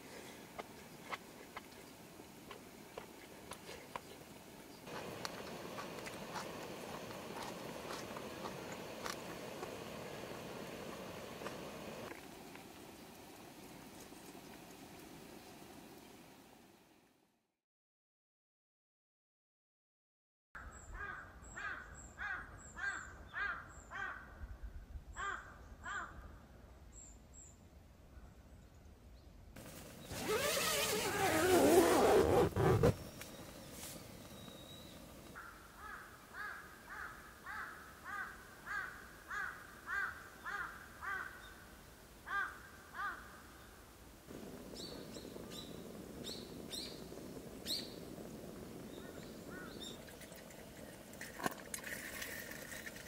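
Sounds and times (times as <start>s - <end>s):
steady low hiss: 0.0s - 17.3s, 26.3s - 53.0s
crows cawing: 21.0s - 24.3s, 25.2s - 26.2s, 35.4s - 41.5s, 42.3s - 43.4s, 49.0s - 49.9s.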